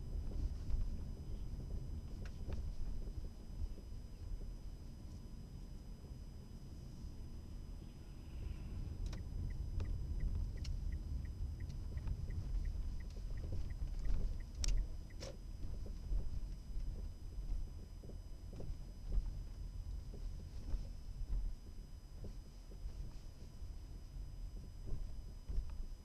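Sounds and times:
turn signal ticking: 0:09.0 - 0:15.9
sharp clicks: 0:11.6 - 0:15.4.

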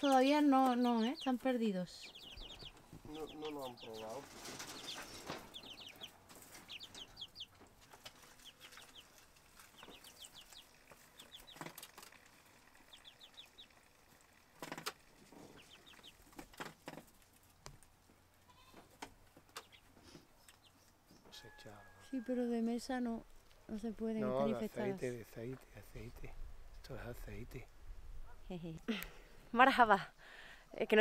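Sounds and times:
chicks peeping: 0:00.0 - 0:17.4, 0:19.5 - 0:21.4.

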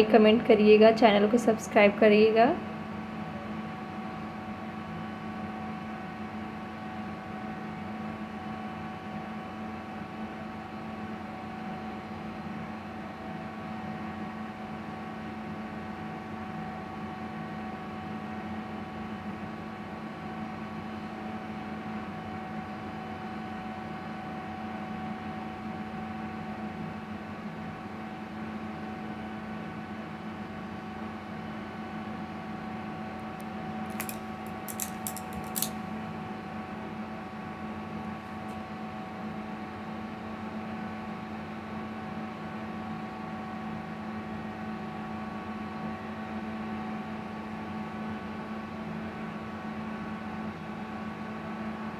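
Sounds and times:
steady mechanical hum: 0:00.0 - 0:51.9
scissors snipping hair: 0:33.9 - 0:35.8.

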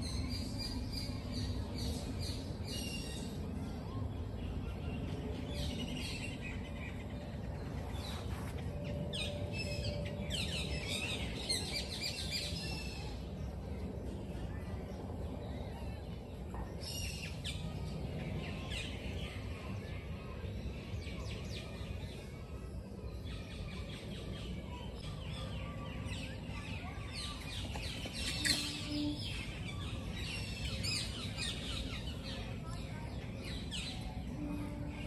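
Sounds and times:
low outdoor rumble: 0:00.0 - 0:35.0
birds chirping: 0:24.5 - 0:35.0.

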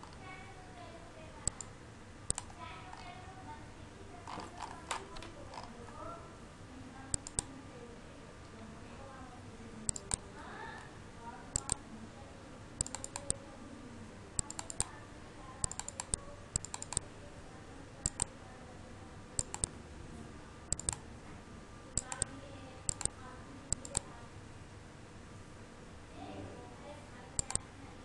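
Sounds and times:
mouse and keyboard clicking: 0:01.4 - 0:01.7, 0:02.3 - 0:03.1, 0:07.1 - 0:07.5, 0:09.9 - 0:10.2, 0:11.5 - 0:11.8, 0:12.8 - 0:13.4, 0:14.4 - 0:15.0, 0:15.6 - 0:17.0, 0:18.0 - 0:18.3, 0:19.4 - 0:19.7, 0:20.7 - 0:21.0, 0:22.0 - 0:24.1, 0:27.4 - 0:27.6.

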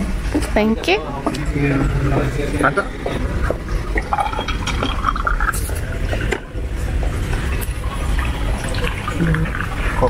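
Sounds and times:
drink pouring into a glass: 0:04.0 - 0:06.5.

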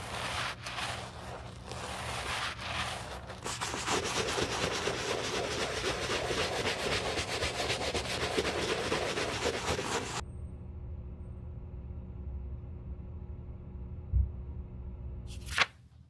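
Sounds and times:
brush scrubbing leather shoe: 0:00.0 - 0:10.2.

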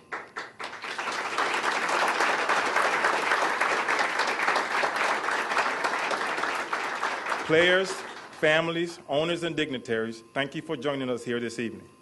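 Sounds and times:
audience applause: 0:00.0 - 0:08.4.

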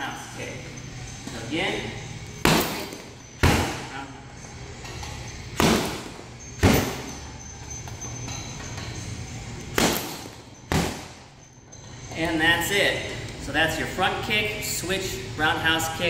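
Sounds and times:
kicks thudding on punching bag: 0:02.4 - 0:03.9, 0:05.6 - 0:07.1, 0:09.7 - 0:11.2.

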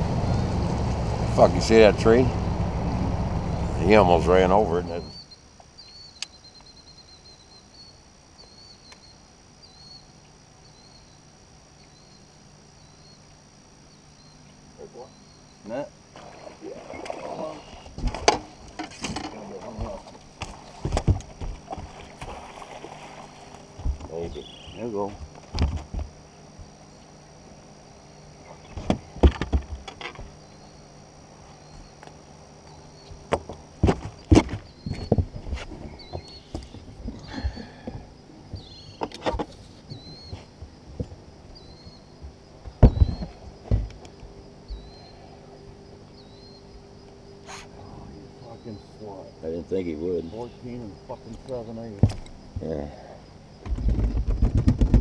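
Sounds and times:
faint low hum: 0:00.0 - 0:55.0
small bird chirping: 0:05.0 - 0:16.7, 0:24.1 - 0:24.8, 0:30.3 - 0:33.3, 0:35.8 - 0:37.7, 0:38.5 - 0:39.2, 0:39.9 - 0:40.4, 0:41.5 - 0:42.2, 0:44.6 - 0:45.3, 0:46.1 - 0:46.7
fish knocking and thumping: 0:53.6 - 0:55.0.

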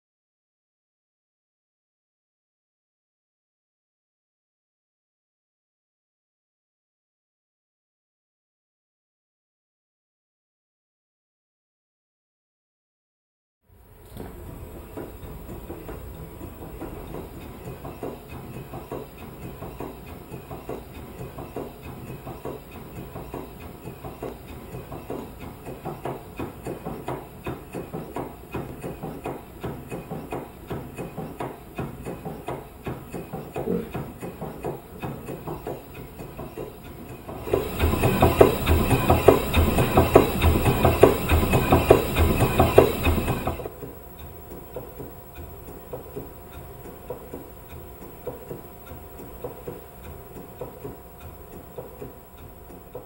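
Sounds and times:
model steam engine clattering: 0:14.9 - 0:44.0.

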